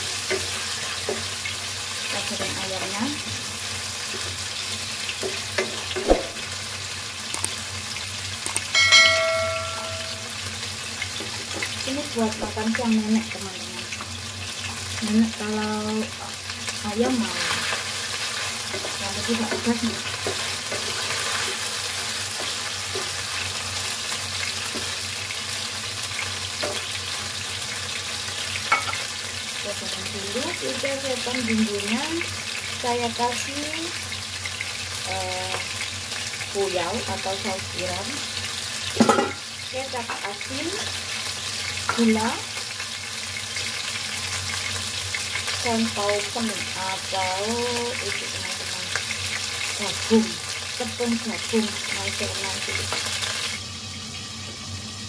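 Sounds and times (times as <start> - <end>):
chicken sizzling in oil: 0.0 - 55.0
sharp knock: 6.0 - 6.4
bell-like chime: 8.8 - 10.4.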